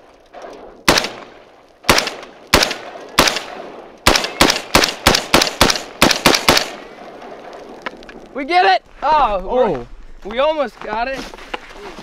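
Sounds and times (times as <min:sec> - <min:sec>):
rifle shots: 0:00.8 - 0:07.4.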